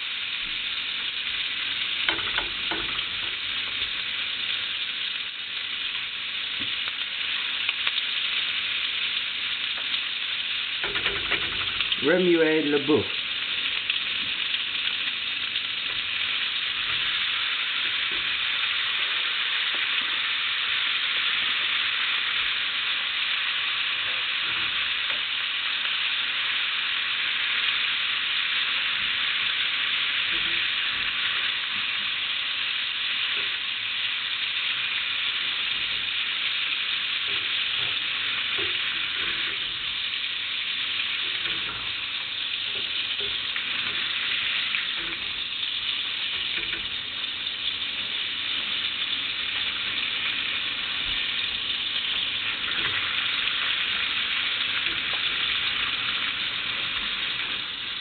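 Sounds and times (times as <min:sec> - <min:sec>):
food sizzling in a frying pan: 0:00.0 - 0:58.0
stirring in a pan: 0:34.8 - 0:58.0.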